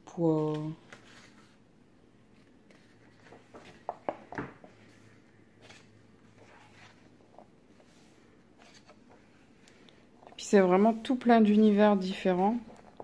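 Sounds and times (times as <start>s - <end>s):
paper pages rustling: 0.5s - 1.6s, 2.3s - 4.0s, 4.8s - 9.8s.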